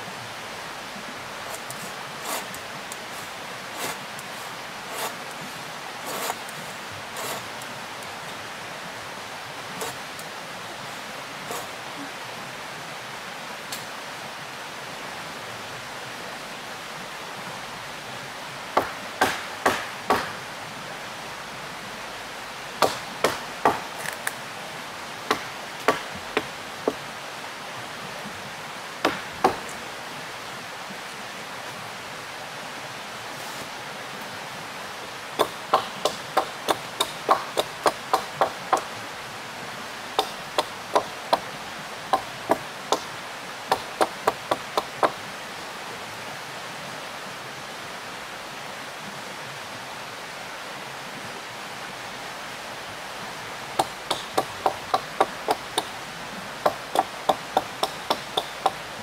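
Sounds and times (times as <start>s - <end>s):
river water rushing: 0.0s - 59.0s
wood chopping blows: 18.8s - 20.4s, 22.8s - 24.4s, 25.3s - 27.0s, 35.4s - 38.9s, 40.2s - 41.5s, 53.8s - 55.9s, 56.6s - 58.8s.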